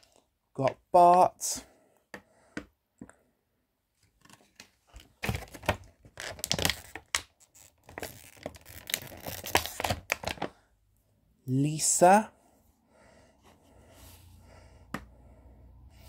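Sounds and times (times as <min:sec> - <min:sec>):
packaging rustling and tearing: 0:04.3 - 0:10.6.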